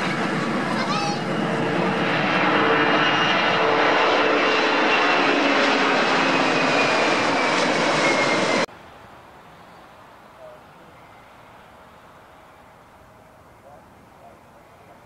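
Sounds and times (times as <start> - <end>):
jet engines roaring at takeoff: 0.0 - 8.7.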